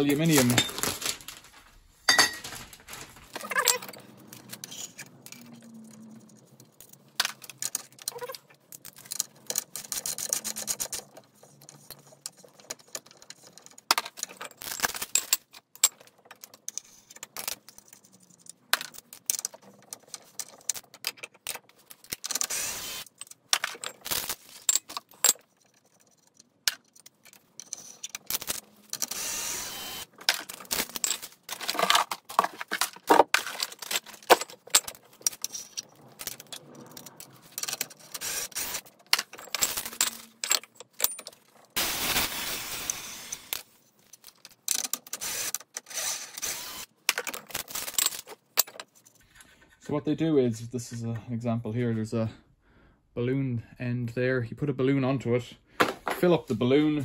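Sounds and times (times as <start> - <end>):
metallic clinking and clattering: 0.3 - 29.1, 30.0 - 41.8
cordless drill running: 22.5 - 23.0, 29.0 - 30.1, 41.8 - 43.5, 45.2 - 46.8.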